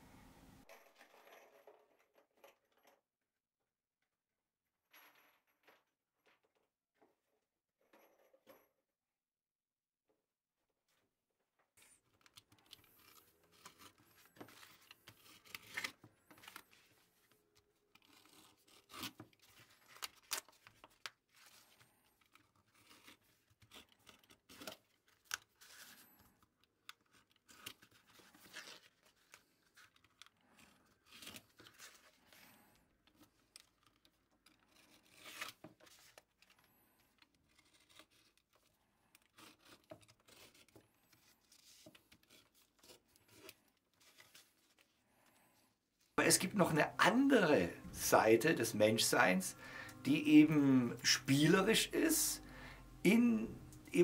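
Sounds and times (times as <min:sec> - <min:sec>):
paper tearing and rustling: 0:12.2 - 0:26.2, 0:26.8 - 0:45.0.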